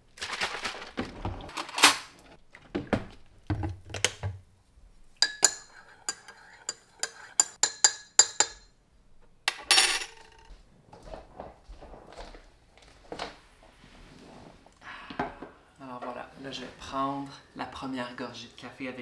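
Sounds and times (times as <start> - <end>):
spoon scraping mug: 5.2 - 7.6
spoon clinking in ceramic mug: 5.2 - 8.6.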